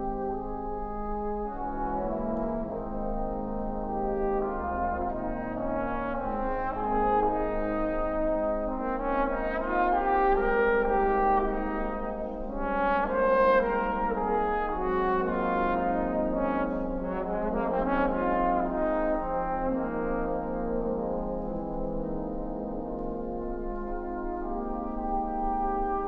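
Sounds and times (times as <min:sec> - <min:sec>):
trombone choir playing chords: 0:00.0 - 0:26.0.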